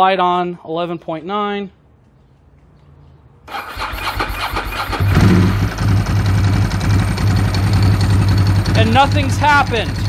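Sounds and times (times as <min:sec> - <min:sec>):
motorcycle engine starting and idling: 0:03.5 - 0:10.0.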